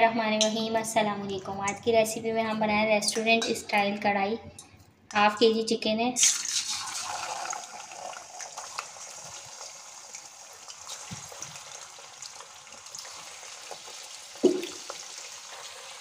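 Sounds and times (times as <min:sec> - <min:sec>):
chicken sizzling in hot oil: 0:06.2 - 0:16.0.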